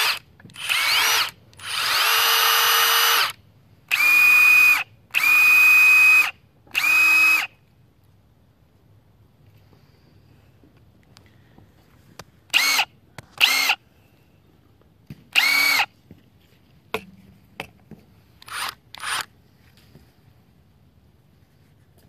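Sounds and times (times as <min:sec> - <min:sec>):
power tool motor whirring: 0:00.0 - 0:07.5, 0:12.5 - 0:13.8, 0:15.3 - 0:15.9, 0:18.4 - 0:19.3.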